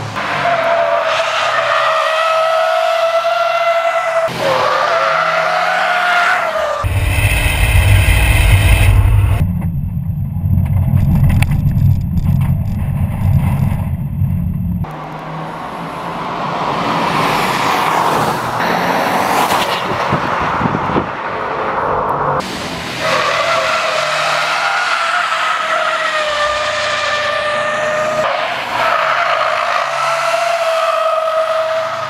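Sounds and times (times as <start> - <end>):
car engine rumbling: 6.5 - 16.4.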